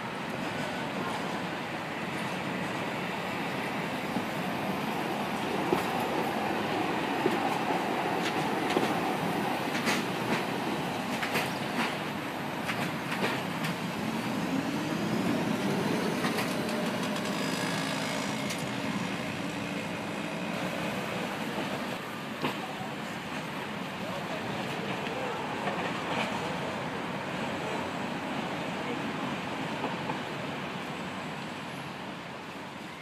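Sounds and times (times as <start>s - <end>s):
electric tram running on track: 0.0s - 33.0s
wheels clicking over rail joints: 16.1s - 18.8s.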